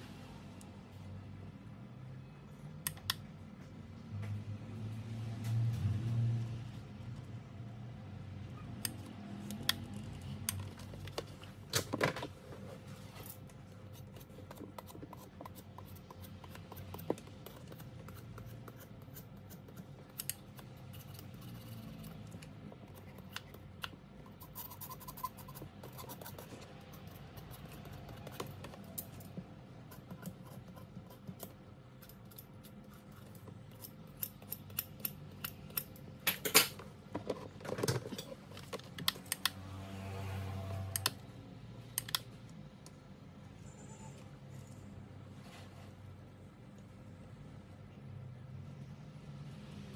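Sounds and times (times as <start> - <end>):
wires and tools on table: 0.0 - 49.9
faint steady hum: 40.4 - 49.9.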